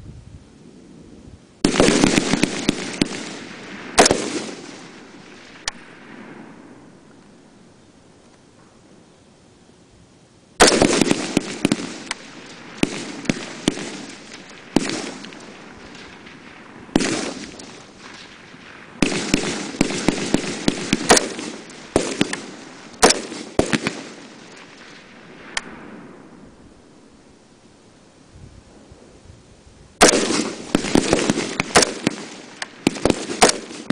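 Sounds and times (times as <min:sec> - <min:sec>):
rifle shots with echo: 0:01.6 - 0:07.7, 0:10.6 - 0:27.2, 0:30.0 - 0:33.9.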